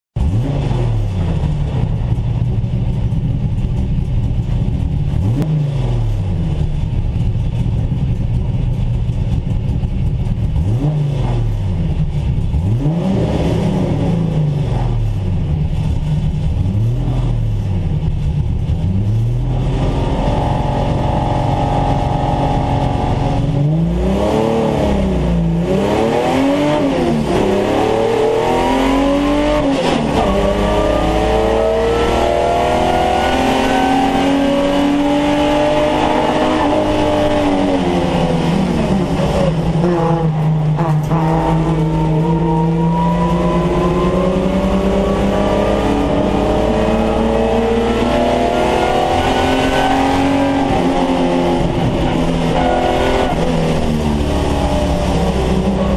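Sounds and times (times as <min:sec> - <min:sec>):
car engine revving: 0:00.2 - 0:55.9.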